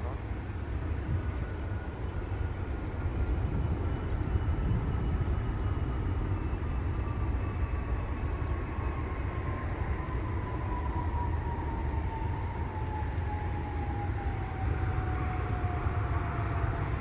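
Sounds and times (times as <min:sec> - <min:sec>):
jet engines rumbling and whining: 0:00.0 - 0:17.0.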